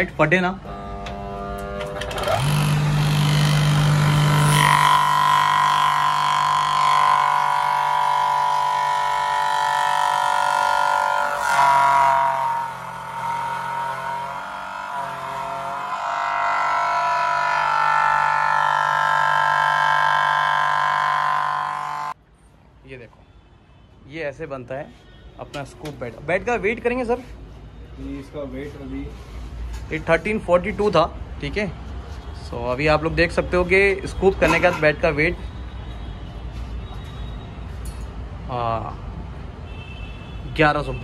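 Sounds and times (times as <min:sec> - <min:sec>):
power cutting machine whine: 0:01.0 - 0:22.2.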